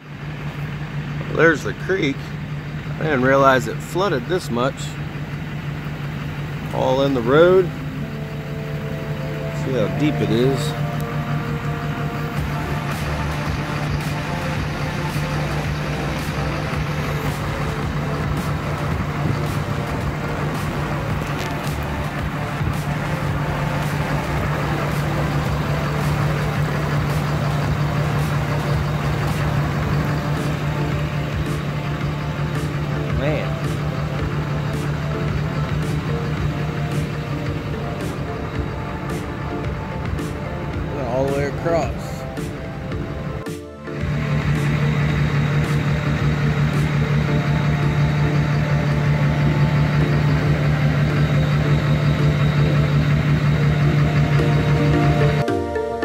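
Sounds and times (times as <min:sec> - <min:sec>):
diesel truck engine running: 0:00.0 - 0:55.5
water churning and splashing: 0:10.7 - 0:41.0.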